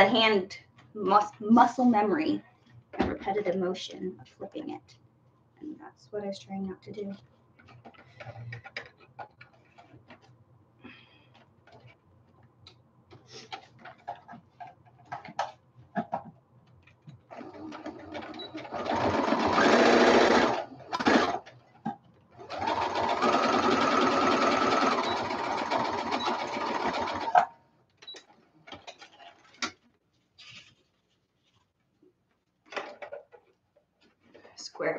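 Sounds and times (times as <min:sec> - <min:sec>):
sewing machine stitching: 0:17.3 - 0:21.6, 0:22.4 - 0:27.5.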